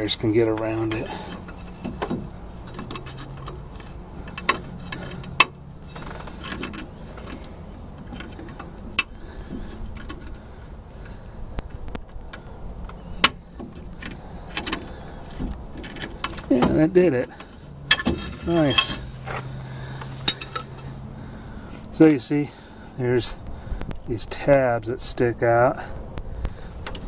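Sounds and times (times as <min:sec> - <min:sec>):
pliers scraping on metal: 0:17.9 - 0:19.1.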